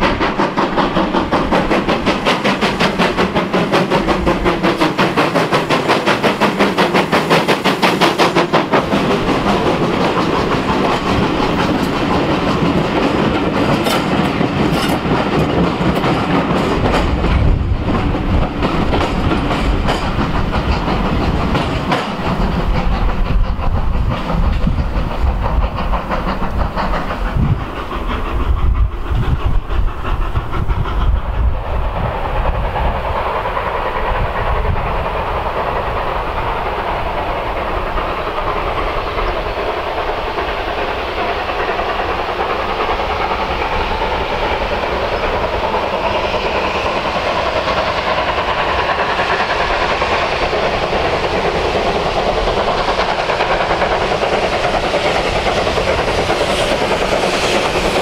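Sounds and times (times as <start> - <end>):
distant steam train running: 0.0 - 58.0
gusty low rumble: 16.6 - 21.6, 22.2 - 35.6.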